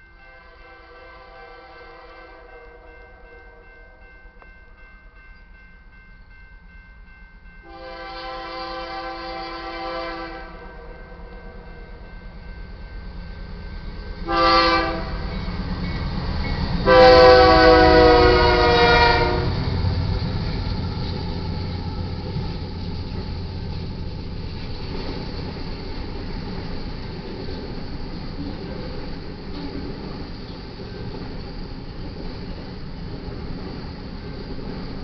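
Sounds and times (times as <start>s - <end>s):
train rumbling past on rails: 0.0s - 35.0s
locomotive air horn blasts: 0.3s - 3.6s, 7.7s - 10.9s, 14.2s - 15.3s, 16.8s - 19.6s.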